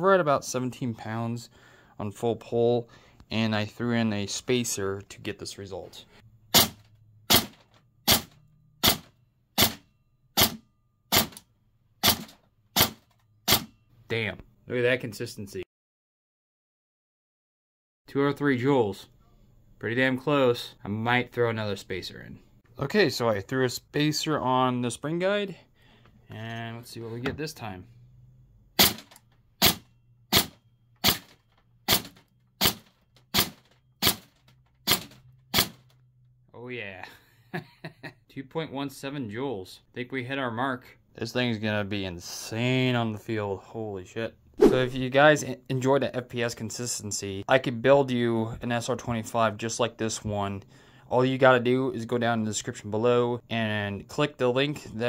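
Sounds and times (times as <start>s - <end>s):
airsoft rifle shots: 6.5s - 9.8s, 10.4s - 11.4s, 12.0s - 13.7s, 28.8s - 35.8s
airsoft rifle shots cracking: 6.5s - 9.8s, 28.8s - 31.3s.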